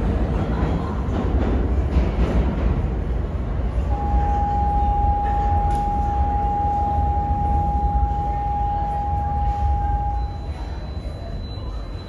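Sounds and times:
subway station rumble: 0:00.0 - 0:12.0
steady high tone: 0:03.9 - 0:12.0.

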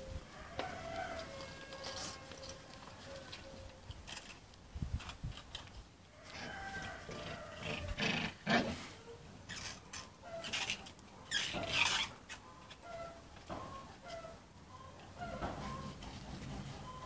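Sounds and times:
puppies growling and yapping: 0:07.2 - 0:08.9
puppies high squeaks: 0:09.5 - 0:16.1.

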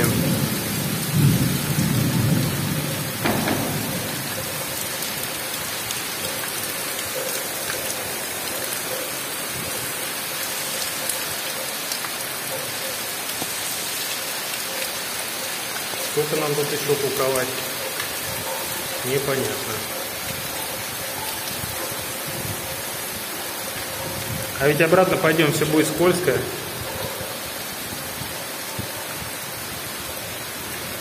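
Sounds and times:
low rumble of thunder: 0:00.0 - 0:05.2
heavy rain on foliage and road: 0:00.0 - 0:31.0.

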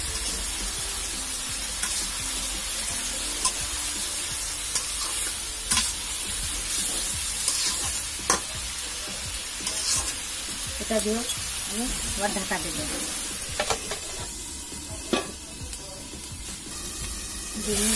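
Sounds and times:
curry sizzling: 0:00.0 - 0:17.9
metal spatula scraping a pan: 0:06.6 - 0:08.5, 0:09.6 - 0:10.2.

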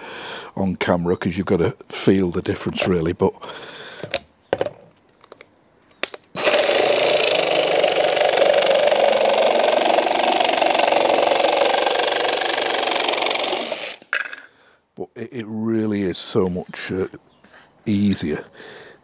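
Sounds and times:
jigsaw cutting flooring: 0:06.4 - 0:14.4.

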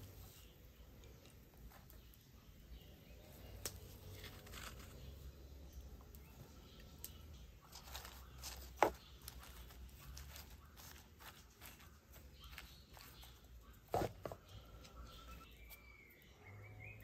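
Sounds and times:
wooden spoon scraping in clay pot: 0:03.8 - 0:05.6, 0:07.6 - 0:15.5.

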